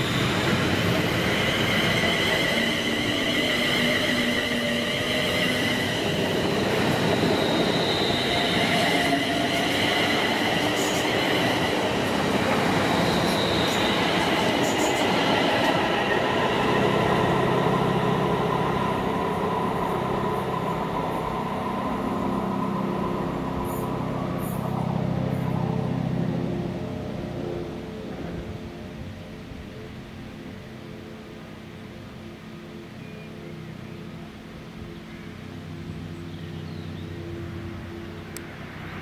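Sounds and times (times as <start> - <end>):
train wheels rumbling on rail: 0.0 - 28.9.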